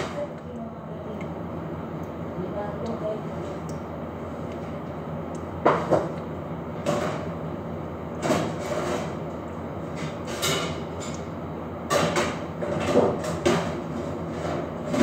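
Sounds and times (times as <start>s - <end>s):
knocks and clatter at oven: 11.9s - 15.0s.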